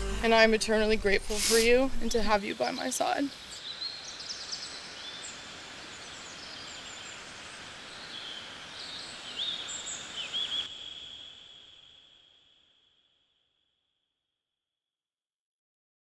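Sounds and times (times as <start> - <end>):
steady hiss: 0.0 - 12.4
small birds chirping: 0.3 - 11.8.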